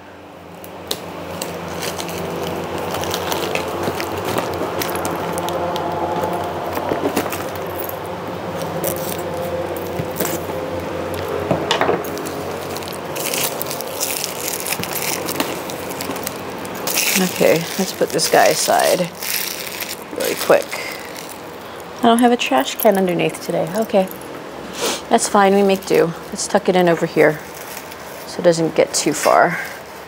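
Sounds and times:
background hum of held tones: 0.0s - 30.0s
cardboard box handling: 1.8s - 7.8s.

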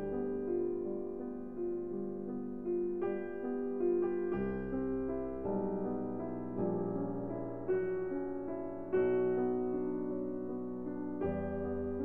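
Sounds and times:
slow piano chords: 0.0s - 12.0s.

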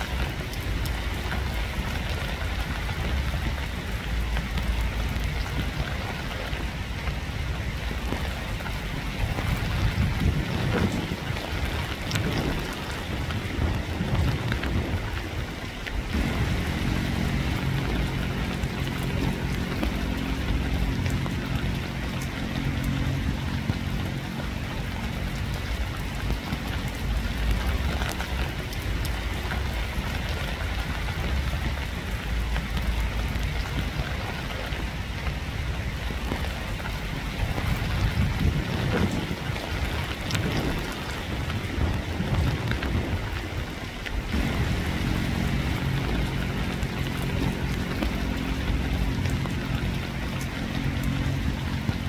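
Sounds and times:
steady rain falling: 0.0s - 52.0s
low droning hum: 15.9s - 34.9s, 44.3s - 52.0s.

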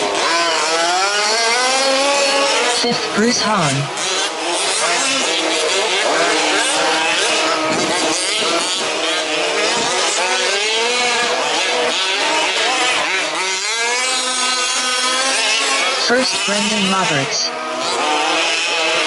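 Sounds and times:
small petrol engines revving: 0.0s - 19.0s.

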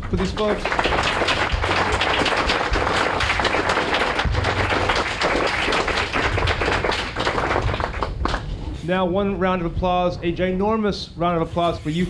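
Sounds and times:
audience applause: 0.0s - 8.5s.

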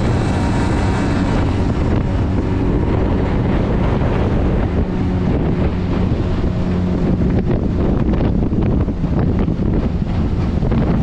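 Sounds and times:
boat motor running: 0.0s - 11.0s
wind buffeting microphone: 0.0s - 11.0s.

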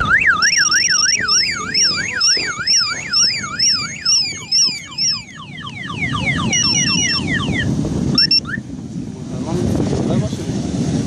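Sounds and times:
car alarm wailing and chirping: 0.0s - 8.6s
low traffic rumble: 0.0s - 11.0s.

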